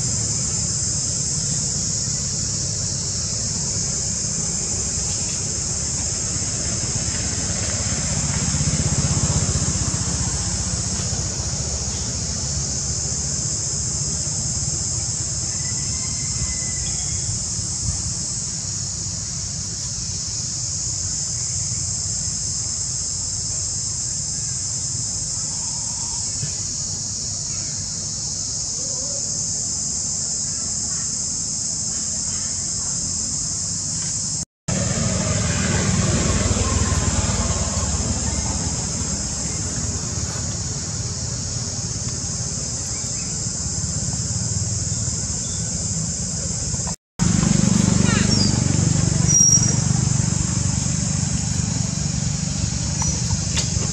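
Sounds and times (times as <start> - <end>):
low outdoor rumble: 0.0 - 15.6, 34.7 - 53.9
high-pitched insect drone: 0.0 - 53.9.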